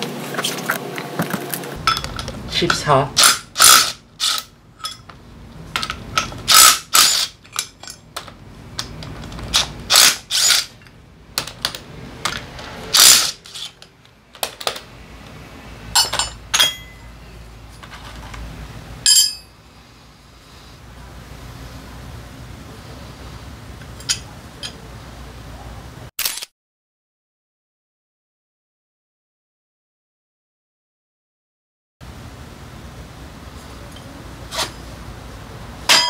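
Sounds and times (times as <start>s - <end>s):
metal clicks and clinks: 1.8s - 5.1s
cordless drill whirring: 9.9s - 10.6s.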